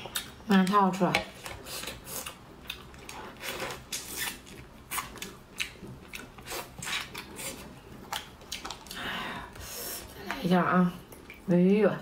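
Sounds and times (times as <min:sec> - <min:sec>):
chewing and wet lip-smacks: 0:00.0 - 0:00.8, 0:01.4 - 0:09.0.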